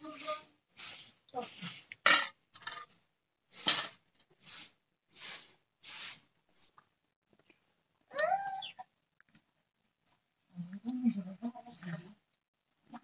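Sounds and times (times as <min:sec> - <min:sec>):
scraping a steel plate: 0:03.6 - 0:04.0
domestic animal crying: 0:08.1 - 0:08.9.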